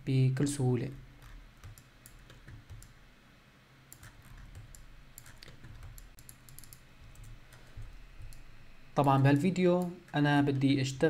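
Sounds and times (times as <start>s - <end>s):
low steady hum: 0.0s - 11.0s
mouse and keyboard clicking: 1.2s - 3.0s, 3.9s - 10.0s.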